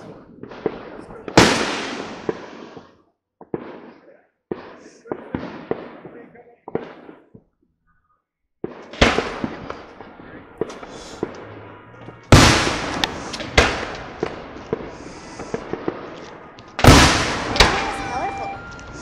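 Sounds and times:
fireworks bangs echoing: 0.0s - 7.5s, 8.6s - 19.0s
crackling pops: 8.6s - 19.0s.

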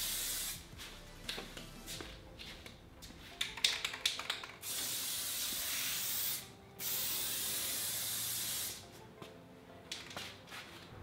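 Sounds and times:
aerosol spray hissing: 0.0s - 0.6s, 4.6s - 8.8s.

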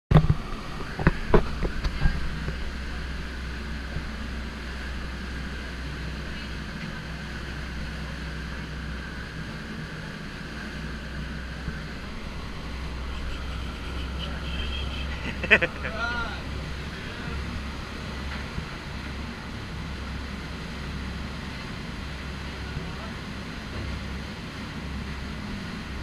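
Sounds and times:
boat engine droning: 0.1s - 26.0s.

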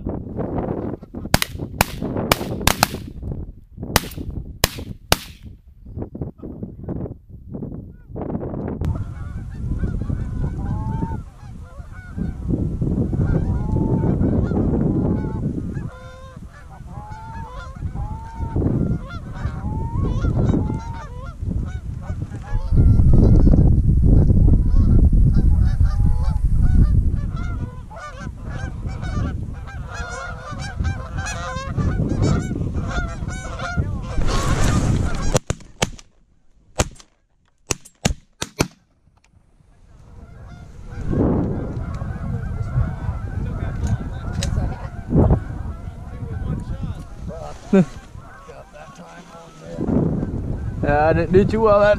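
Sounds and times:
wind rumble on microphone: 0.0s - 35.6s, 39.3s - 51.9s
geese honking and clucking: 8.9s - 12.5s, 13.1s - 23.6s, 24.7s - 35.4s, 39.9s - 51.0s.

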